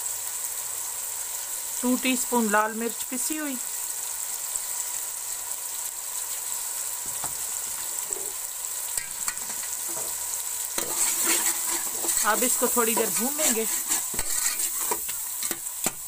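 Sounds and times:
tomatoes frying in hot oil: 0:00.0 - 0:16.0
spoon stirring against pot: 0:09.0 - 0:10.2, 0:10.8 - 0:16.0.

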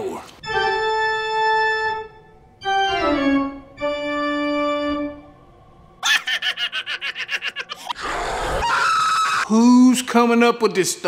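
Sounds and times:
dramatic organ chords: 0:00.4 - 0:06.0.

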